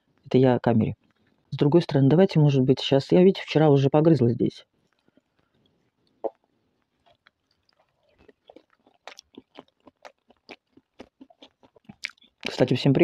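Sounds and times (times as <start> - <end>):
mouth chewing soft food: 1.0 - 1.5, 4.8 - 12.7.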